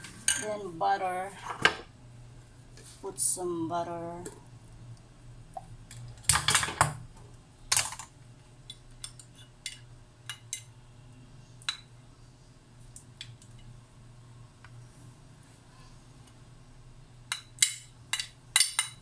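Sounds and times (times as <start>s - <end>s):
kitchen clicks and taps: 17.3s - 19.0s.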